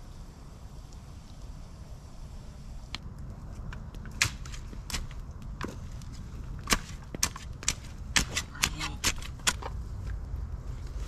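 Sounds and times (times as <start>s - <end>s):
shovel digging in soil: 6.6s - 9.7s.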